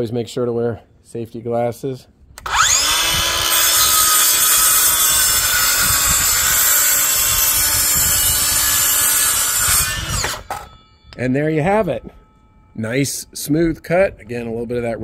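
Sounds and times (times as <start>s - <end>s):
circular saw cutting wood: 2.4s - 10.8s.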